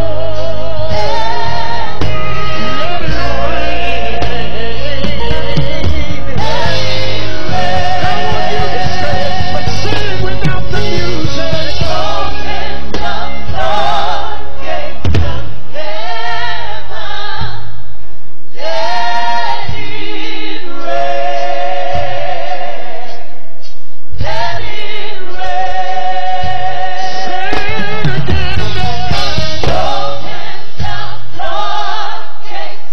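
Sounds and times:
band accompaniment: 0.0 - 14.3, 27.3 - 31.1
deep bass: 0.0 - 15.8, 26.5 - 31.7
voices singing gospel: 0.0 - 17.7, 18.5 - 32.9.

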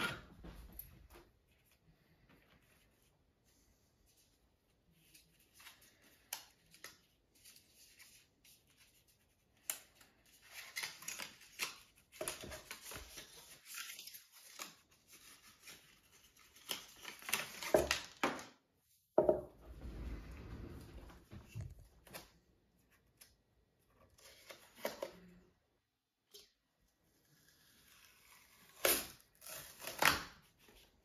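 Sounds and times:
paper and cardboard rustling and tearing: 4.9 - 18.6, 27.2 - 31.0.

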